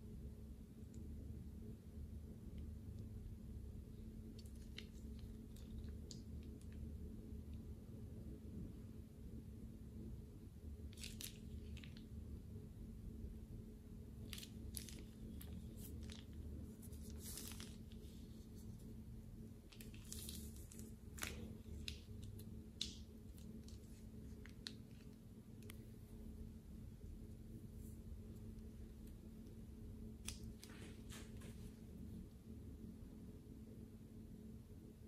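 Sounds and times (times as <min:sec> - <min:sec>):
faint steady hum: 0:00.0 - 0:35.0
plastic piping bag crinkling: 0:04.4 - 0:07.0, 0:10.9 - 0:12.2, 0:14.2 - 0:26.4, 0:27.1 - 0:31.7.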